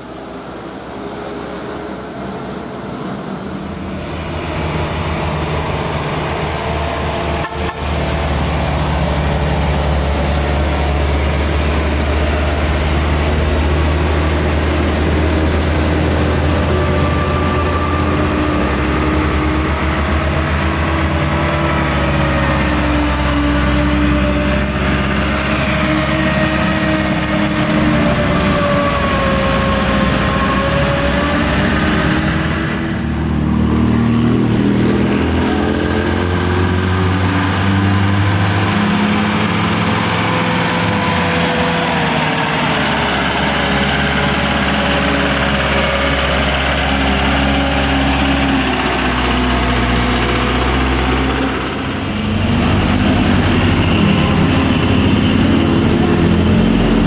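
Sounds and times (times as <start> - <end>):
diesel truck engines climbing: 0.0 - 57.0.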